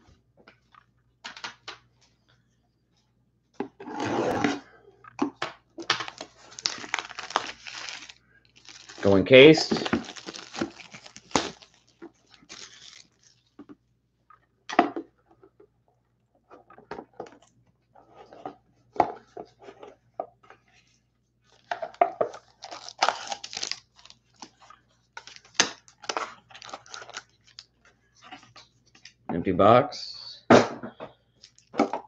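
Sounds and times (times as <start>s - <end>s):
cardboard box and plastic wrap rustling: 5.9s - 13.6s, 21.5s - 24.6s, 25.2s - 28.6s.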